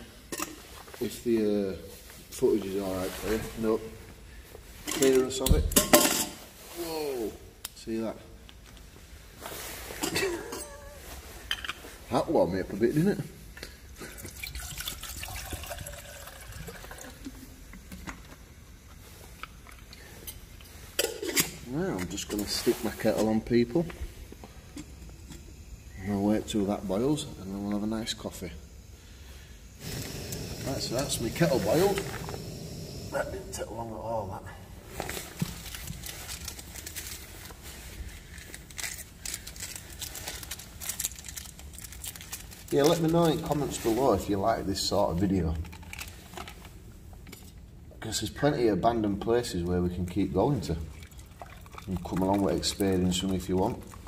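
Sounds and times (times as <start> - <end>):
water pouring into metal kettle: 14.1 - 17.5, 50.4 - 54.0
rucksack and plastic packets rustling: 34.8 - 44.2.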